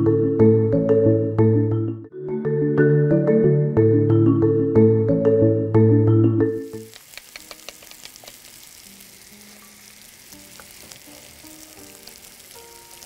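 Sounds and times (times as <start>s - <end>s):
fries sizzling in hot oil: 6.6s - 13.0s
utensils stirring fries: 6.6s - 13.0s.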